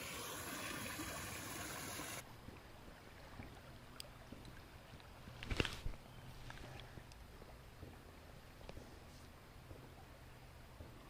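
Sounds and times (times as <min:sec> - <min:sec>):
creek water flowing: 0:00.0 - 0:10.8.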